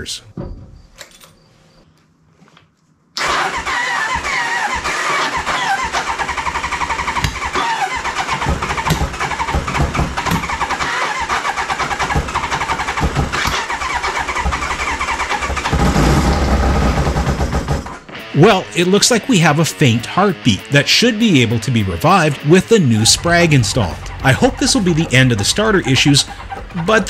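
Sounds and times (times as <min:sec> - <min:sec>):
motorcycle engine cranking on starter: 0:03.2 - 0:18.1, 0:23.0 - 0:27.0.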